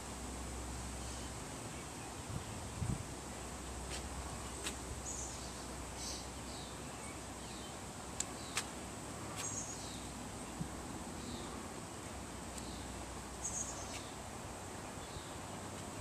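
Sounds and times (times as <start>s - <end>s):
birds chirping faintly: 0.0s - 16.0s
steady high hiss: 0.0s - 16.0s.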